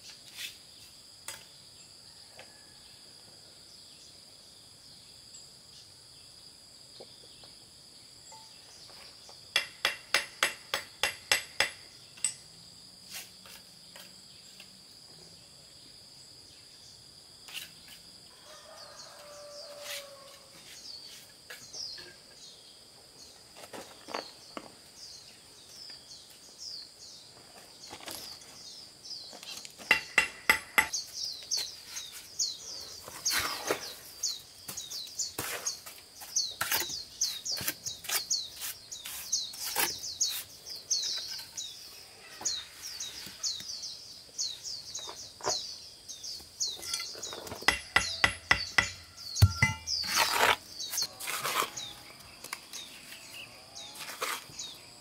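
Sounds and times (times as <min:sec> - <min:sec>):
trowel knocking on concrete blocks: 0:09.6 - 0:12.4, 0:29.8 - 0:31.0, 0:46.8 - 0:50.6
bird chirping: 0:24.2 - 0:55.0.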